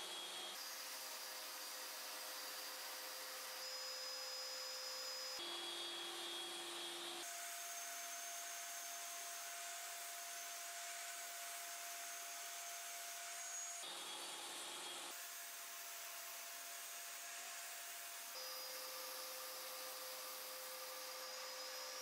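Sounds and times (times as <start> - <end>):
table saw cutting wood: 0.0 - 15.1, 18.4 - 22.0.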